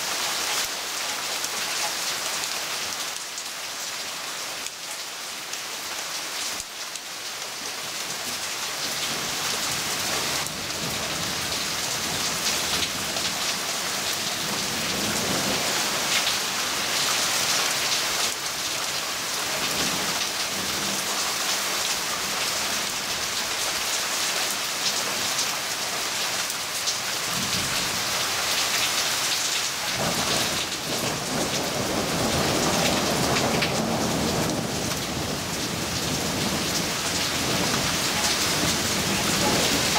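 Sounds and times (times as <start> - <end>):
heavy rain on foliage: 0.0 - 39.9
thunder rumbling: 30.0 - 39.9.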